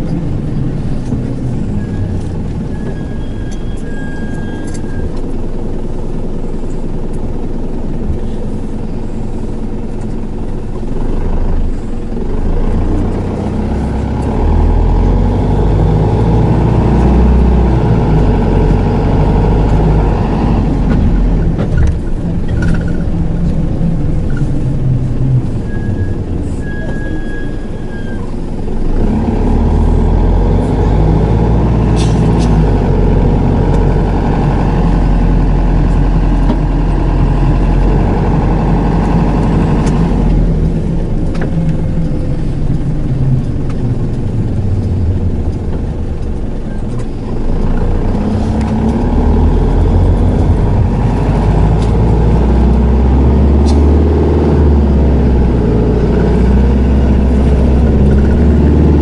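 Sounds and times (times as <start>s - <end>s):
minibus diesel engine accelerating: 0.0s - 59.0s
road noise: 0.0s - 59.0s.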